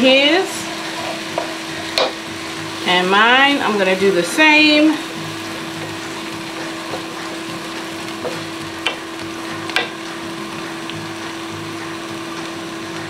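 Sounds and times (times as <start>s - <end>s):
vegetables sizzling in a skillet: 0.0s - 13.0s
wooden spatula knocking on pan: 1.3s - 2.2s, 6.8s - 7.2s, 8.2s - 9.1s, 9.7s - 10.0s.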